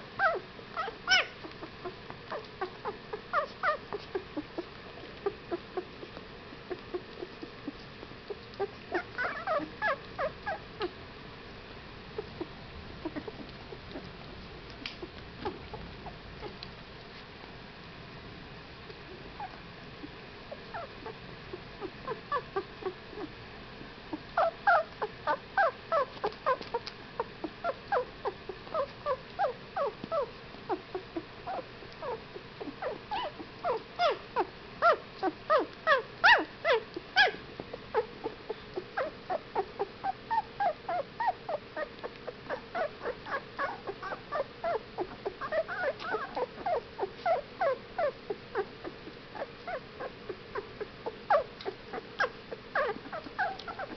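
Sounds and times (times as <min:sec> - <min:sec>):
puppies whimpering and squeaking: 0:00.2 - 0:11.0, 0:12.1 - 0:16.6, 0:19.1 - 0:23.4, 0:24.1 - 0:53.9.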